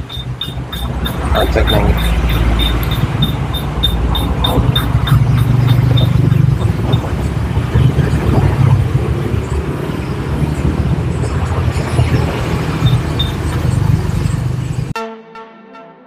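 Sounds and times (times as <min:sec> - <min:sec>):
low rumble of vehicle noise: 0:00.0 - 0:15.0
music: 0:15.0 - 0:16.0.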